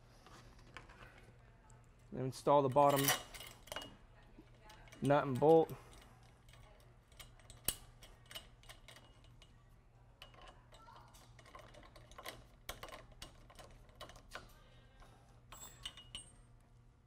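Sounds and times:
metallic clicks of bolt and driver: 0:04.7 - 0:09.5.

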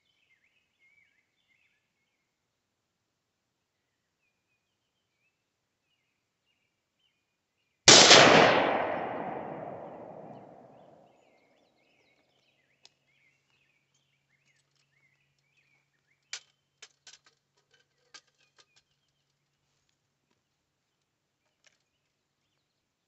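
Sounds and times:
rifle shot: 0:07.9 - 0:10.9.

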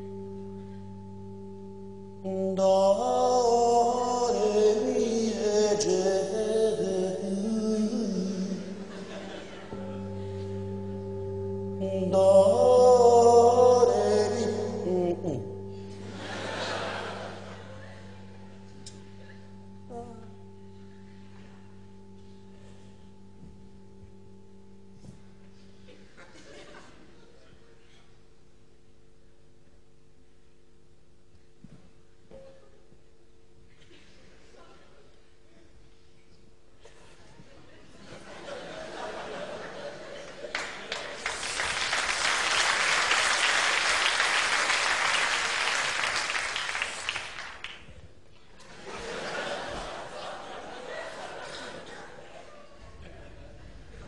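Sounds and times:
steady musical drone: 0:00.0 - 0:27.3, 0:48.6 - 0:54.0
audience applauding: 0:40.0 - 0:47.9.

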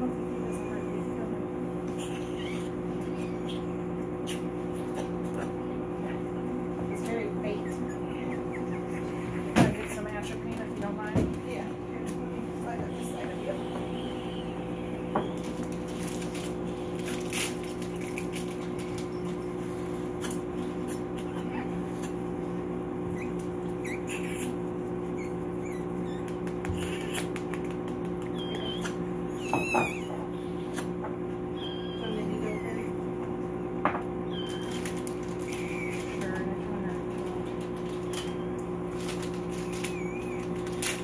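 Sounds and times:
electrical hum: 0:00.0 - 0:41.0
puppies squeaking: 0:01.9 - 0:05.7, 0:06.9 - 0:10.6, 0:13.0 - 0:22.2, 0:23.0 - 0:36.6, 0:37.8 - 0:41.0.

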